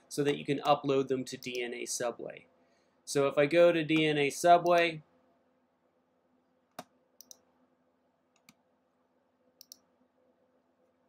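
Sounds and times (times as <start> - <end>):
computer mouse clicks: 6.7 - 7.4, 8.4 - 8.6, 9.6 - 9.9.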